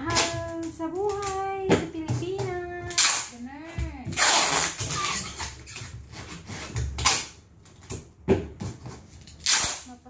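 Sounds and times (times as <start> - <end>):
packing tape pulled off roll: 2.9 - 3.4, 4.1 - 7.4, 9.1 - 10.0.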